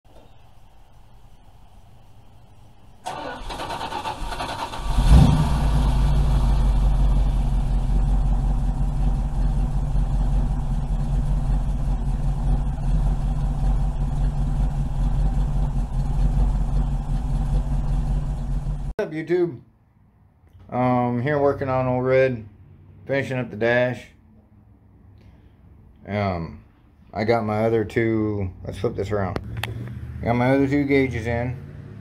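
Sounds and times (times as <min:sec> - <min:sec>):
deep engine idle: 0:00.1 - 0:18.9
engine cranking on starter: 0:03.0 - 0:18.9
engine revving: 0:03.0 - 0:18.9, 0:28.6 - 0:32.0.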